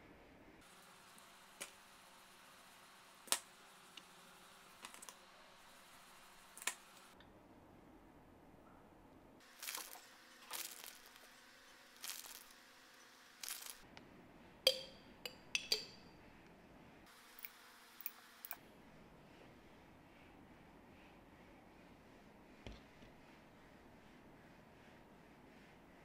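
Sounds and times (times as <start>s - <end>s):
plastic bag rustling: 9.4s - 11.3s, 12.0s - 12.6s.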